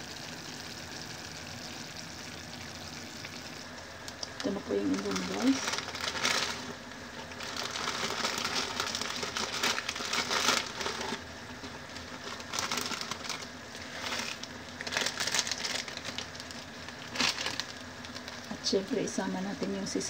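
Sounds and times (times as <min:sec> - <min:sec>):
water boiling: 0:00.0 - 0:20.0
plastic packet crinkling: 0:04.1 - 0:11.2, 0:11.8 - 0:18.5.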